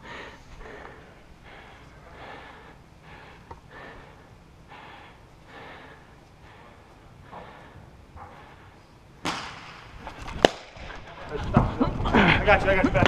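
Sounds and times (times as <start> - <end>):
heavy breathing: 0.0 - 9.0
low hum of indoor hall: 0.0 - 13.0.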